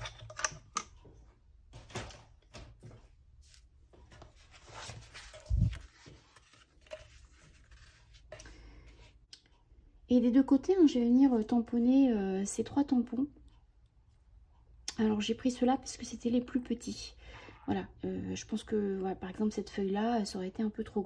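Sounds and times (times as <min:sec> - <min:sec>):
small clicks and knocks: 0:00.0 - 0:01.2
card panel rustling and sliding: 0:03.5 - 0:08.3.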